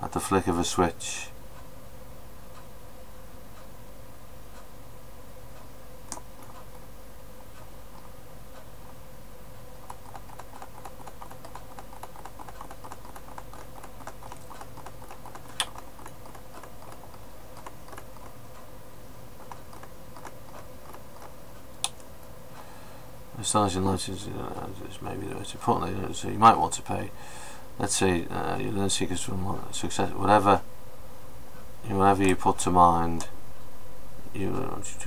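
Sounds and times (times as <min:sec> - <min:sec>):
electrical hum: 0:00.0 - 0:35.0
mouse clicks: 0:09.8 - 0:18.3
mouse scroll wheel ticking: 0:09.8 - 0:18.7, 0:19.3 - 0:22.1.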